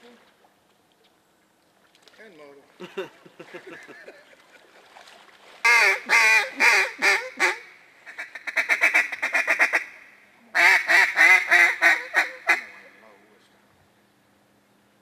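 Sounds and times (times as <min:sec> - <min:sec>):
duck call quacks: 0:05.7 - 0:13.0.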